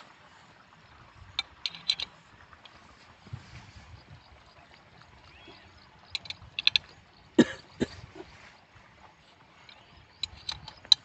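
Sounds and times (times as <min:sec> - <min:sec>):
spanner clicking on metal bolts: 0:06.1 - 0:06.9, 0:09.7 - 0:11.0.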